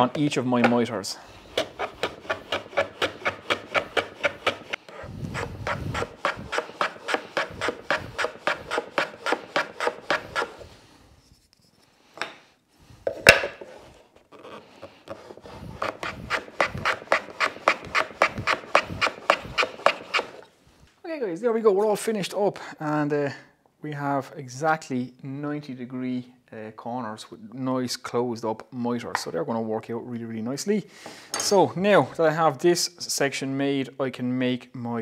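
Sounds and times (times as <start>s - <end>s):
hand plane shaving wood: 1.5s - 10.6s, 14.4s - 20.4s.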